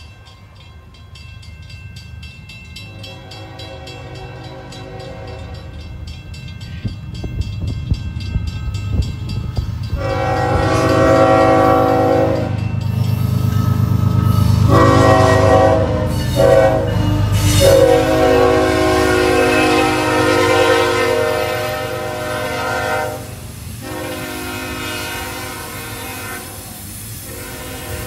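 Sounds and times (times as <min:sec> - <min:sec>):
train cars clattering: 0:00.0 - 0:28.0
locomotive horn blowing: 0:02.9 - 0:05.8, 0:09.9 - 0:12.7, 0:14.5 - 0:28.0.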